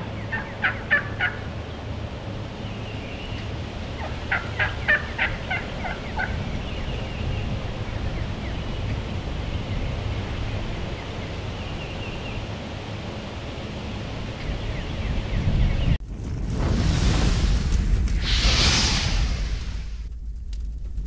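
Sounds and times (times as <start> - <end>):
turkey gobbling: 0.0 - 1.6, 4.0 - 6.8
low rumble: 1.4 - 21.0.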